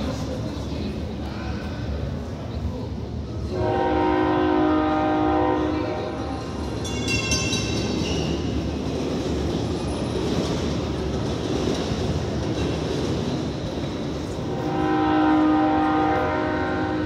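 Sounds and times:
train running rumble: 0.0s - 17.0s
train horn chord: 3.5s - 6.3s, 14.5s - 17.0s.

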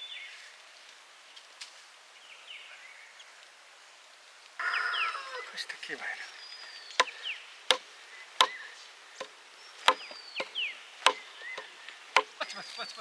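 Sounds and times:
birds chirping: 4.6s - 13.0s
blade chopping wooden stick: 8.4s - 8.6s, 9.2s - 12.4s.

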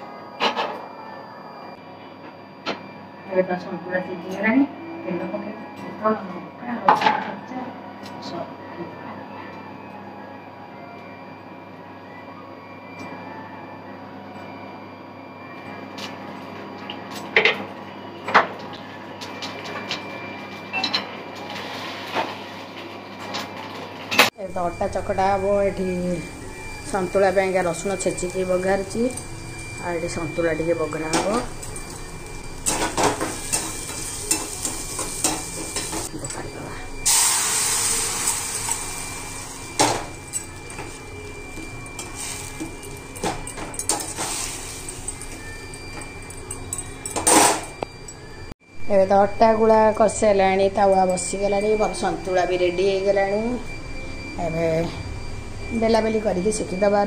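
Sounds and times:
steady background hum: 0.0s - 57.0s
vegetables sizzling in hot oil: 31.0s - 36.1s, 37.0s - 45.2s.

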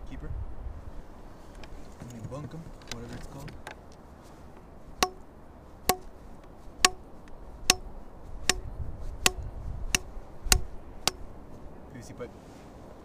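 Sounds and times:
pipe striking fish head: 5.0s - 5.2s, 8.4s - 11.2s.

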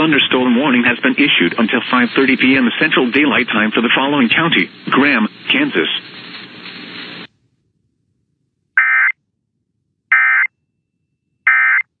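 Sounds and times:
radio hiss: 0.0s - 7.3s.

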